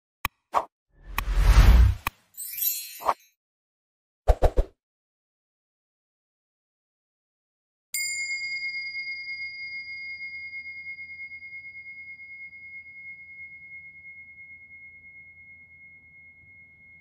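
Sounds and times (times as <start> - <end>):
bell ding: 8.0 - 17.0.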